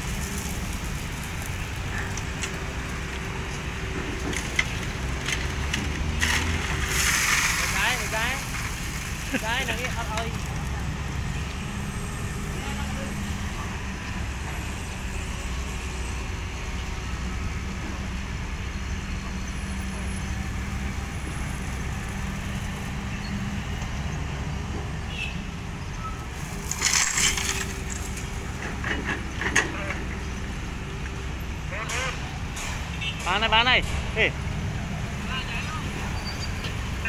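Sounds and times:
gravel pouring into steel truck bed: 6.0s - 10.4s, 26.4s - 28.2s.

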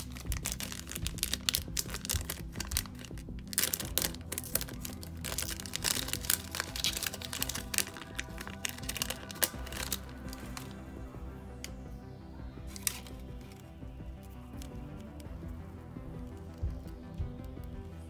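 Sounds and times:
plastic packaging crinkling: 0.0s - 10.8s, 12.7s - 13.6s
background music: 0.0s - 18.0s.

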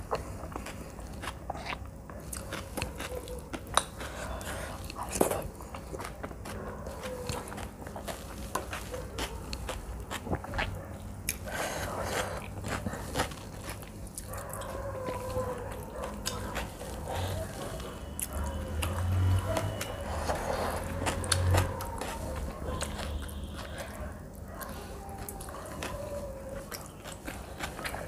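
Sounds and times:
fingers squishing food: 0.0s - 28.0s
person chewing: 0.0s - 28.0s.

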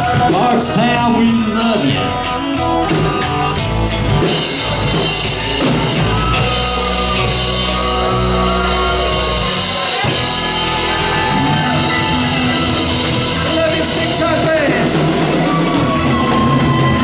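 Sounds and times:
live rock band playing: 0.0s - 17.0s.

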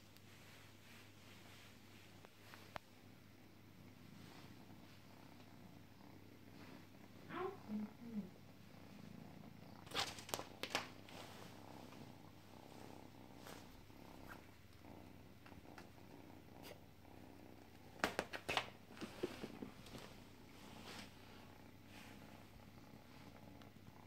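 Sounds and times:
cat purring: 0.0s - 24.0s
crackling rustles: 9.7s - 14.8s.

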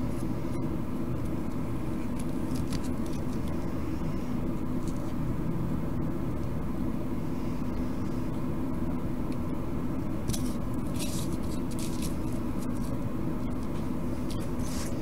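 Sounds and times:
steady low hum: 0.0s - 15.0s
clicks and scrapes of small parts: 2.1s - 3.6s, 10.3s - 13.0s.

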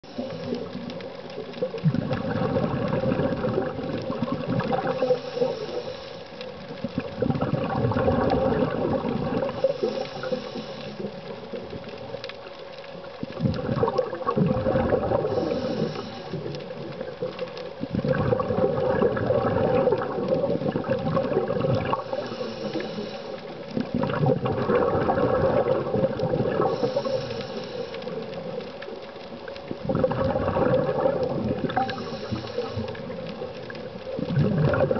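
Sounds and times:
regulator inhale hiss: 0.0s - 0.8s, 4.5s - 6.7s, 9.3s - 11.6s, 15.2s - 17.1s, 21.9s - 23.9s, 26.5s - 28.7s, 31.6s - 33.6s
exhaled bubbles rushing: 0.0s - 5.8s, 6.5s - 10.4s, 13.1s - 22.4s, 23.7s - 27.2s, 29.6s - 34.9s
steady hum: 0.0s - 13.7s, 14.4s - 18.3s, 20.0s - 34.6s.

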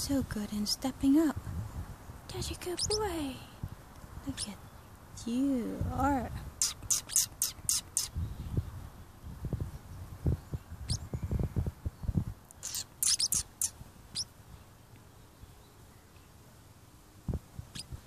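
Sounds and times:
parrots chirping: 2.7s - 3.1s, 6.6s - 8.2s, 10.9s - 11.1s, 12.5s - 14.3s, 17.7s - 18.0s.

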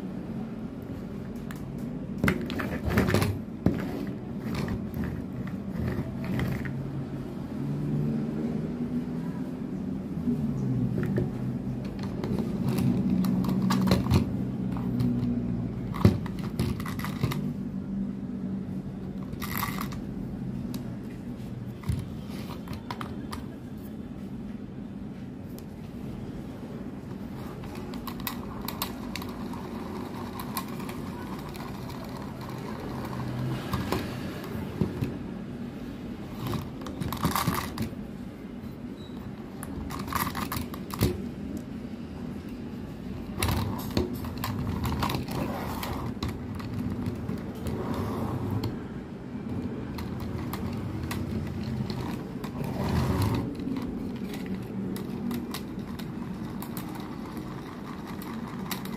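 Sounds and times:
plastic toy clicks and rattles: 11.8s - 17.6s, 19.2s - 20.9s, 27.5s - 35.2s, 36.4s - 38.0s, 39.6s - 41.3s, 43.2s - 47.8s, 49.5s - 58.9s.

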